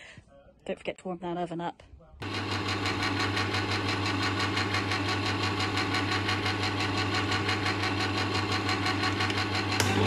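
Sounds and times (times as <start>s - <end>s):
electric can opener humming: 2.2s - 10.0s.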